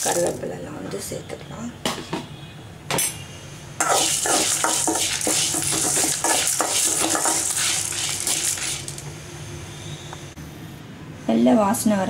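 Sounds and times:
lentils and chillies scraping a pan: 0:00.0 - 0:00.4, 0:03.8 - 0:09.0.

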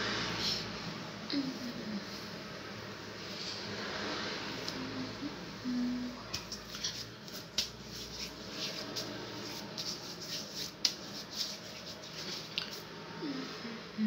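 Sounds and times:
hands spreading lotion on skin: 0:06.4 - 0:12.9.

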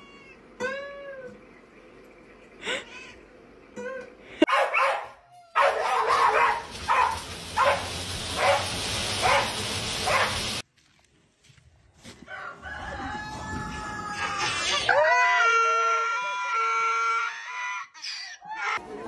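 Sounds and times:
dog barking: 0:04.5 - 0:10.5.

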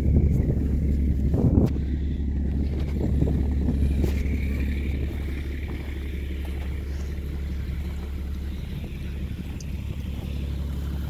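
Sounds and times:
bus engine idling: 0:00.0 - 0:11.0.

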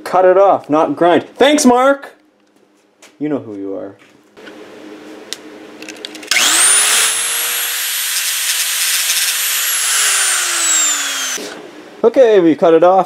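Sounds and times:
angle grinder motor whine: 0:06.3 - 0:11.6.

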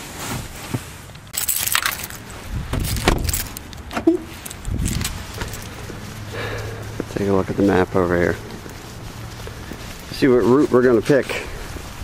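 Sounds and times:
clothes rustling: 0:00.0 - 0:12.0
keys jangling: 0:01.3 - 0:02.2, 0:02.8 - 0:05.8
car door shutting: 0:02.7 - 0:04.3.

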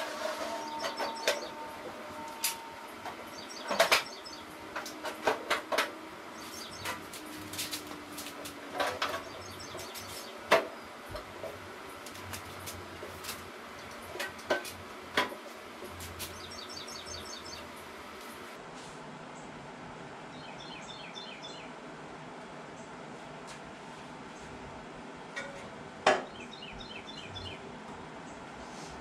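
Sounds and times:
birds chirping faintly: 0:00.3 - 0:08.1, 0:08.8 - 0:14.4, 0:15.8 - 0:18.6, 0:20.3 - 0:21.8, 0:26.2 - 0:28.5.

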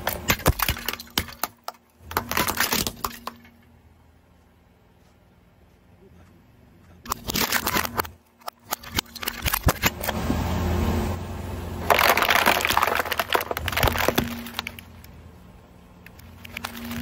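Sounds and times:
tyre crushing brittle objects: 0:00.0 - 0:03.6, 0:07.1 - 0:10.2, 0:11.8 - 0:15.1, 0:16.1 - 0:17.0
low car rumble: 0:09.0 - 0:17.0.

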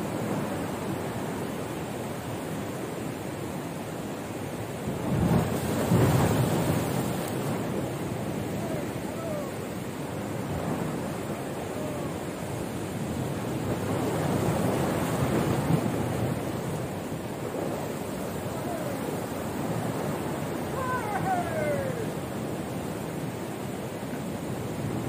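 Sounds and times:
sea surf on rocky shore: 0:00.0 - 0:25.0
wind buffeting microphone: 0:04.8 - 0:23.4.

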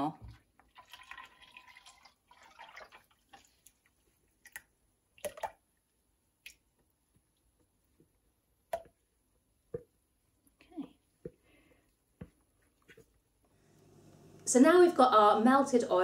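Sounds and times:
oil trickling into pot: 0:00.4 - 0:05.6.

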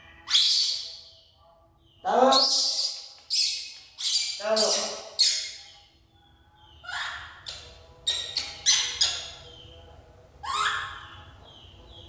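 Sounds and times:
baby monkey screeching cries: 0:00.3 - 0:00.9, 0:02.3 - 0:05.6, 0:06.8 - 0:07.4, 0:10.4 - 0:11.3.

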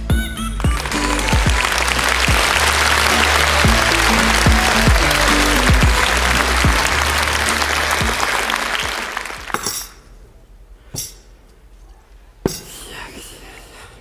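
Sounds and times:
intro music with bass line: 0:00.0 - 0:09.4
audience applauding: 0:00.6 - 0:09.9.

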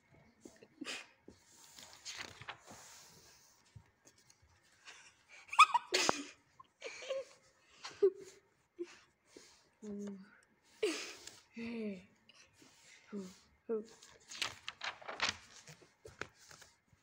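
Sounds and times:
book page rustling: 0:01.3 - 0:04.8, 0:12.7 - 0:17.0.

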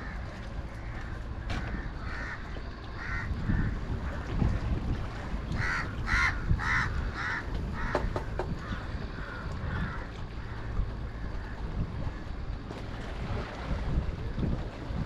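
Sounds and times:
steady low rumble: 0:00.0 - 0:15.0
crow cawing: 0:00.9 - 0:03.7, 0:05.6 - 0:10.7.

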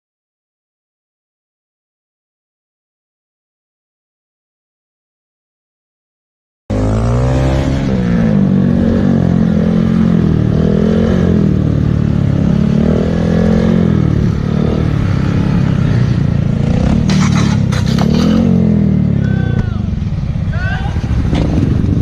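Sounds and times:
motorcycle engine revving: 0:06.7 - 0:22.0.

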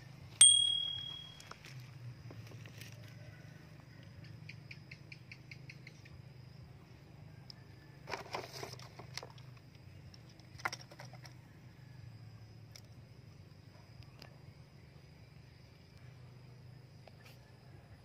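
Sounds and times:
low steady hum: 0:00.0 - 0:02.3.

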